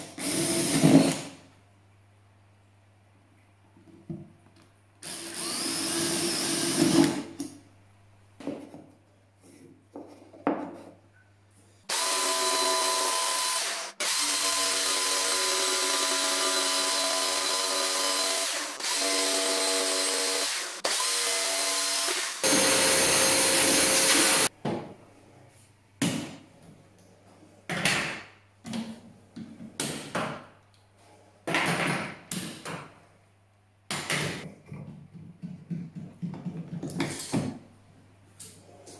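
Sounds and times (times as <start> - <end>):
cordless drill boring: 0.2 - 1.2, 5.0 - 7.2, 11.9 - 24.5
jigsaw cutting: 5.0 - 7.2, 11.9 - 24.5.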